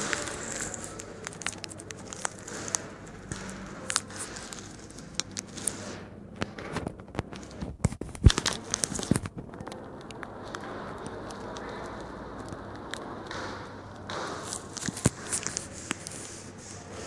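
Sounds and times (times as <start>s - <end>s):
fingers rubbing phone microphone: 14.3s - 17.0s.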